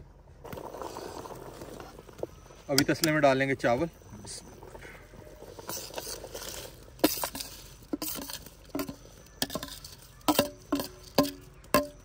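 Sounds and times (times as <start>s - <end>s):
rice knocking against metal pot: 7.0s - 12.0s.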